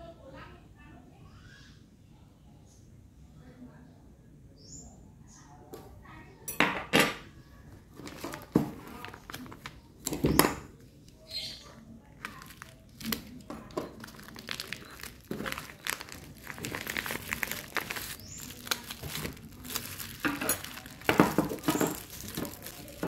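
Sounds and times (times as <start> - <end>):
plastic packaging crinkling: 7.9 - 10.2, 12.0 - 23.0.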